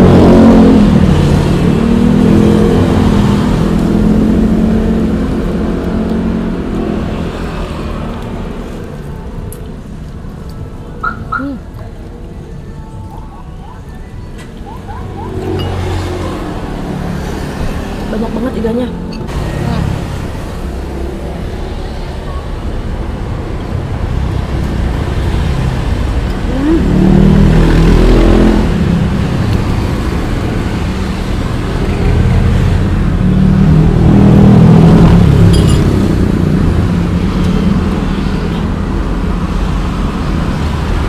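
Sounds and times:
traffic rumble: 0.0 - 41.0
vehicles passing by: 0.0 - 41.0.

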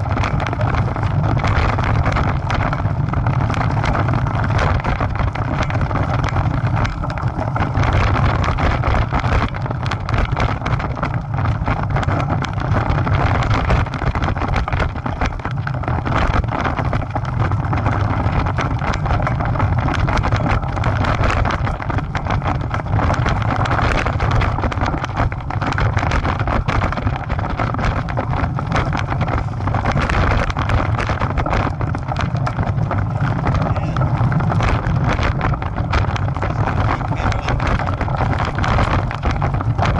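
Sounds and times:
bicycle tyres rumbling on dirt: 0.0 - 39.9
bike rattling: 0.0 - 39.9
wind buffeting microphone: 0.0 - 39.9.

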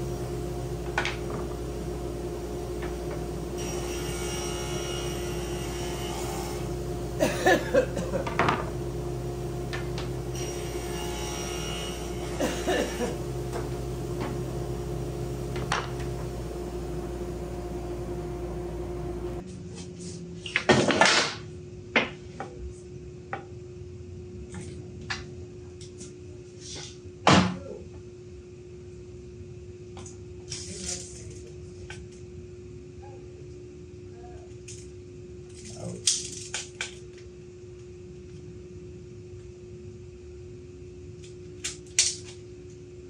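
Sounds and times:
table saw motor hum: 0.0 - 19.4.

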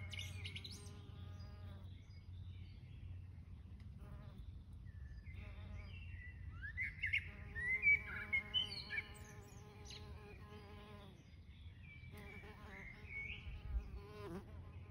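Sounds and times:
bird chirping: 0.0 - 3.4, 4.0 - 14.9
bumblebee buzzing in flight: 12.2 - 14.9.

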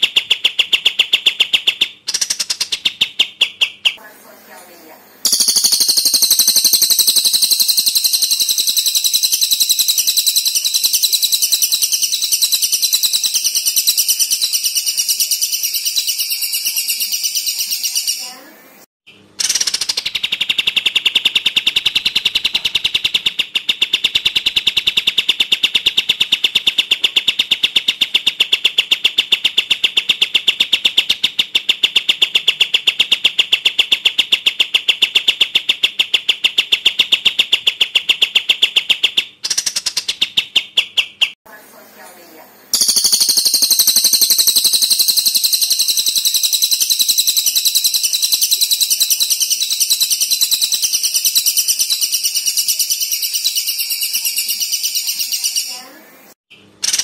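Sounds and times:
higher bird trill: 5.2 - 18.5, 42.8 - 56.0.

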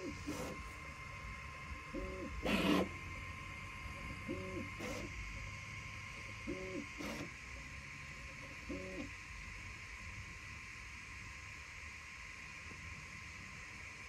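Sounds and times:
stepper motor hums: 0.0 - 9.5
steady high whine: 0.0 - 14.0.

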